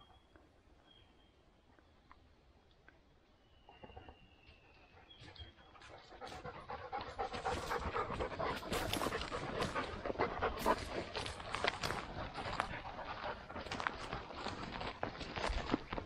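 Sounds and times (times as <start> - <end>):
dog panting: 5.8 - 15.0.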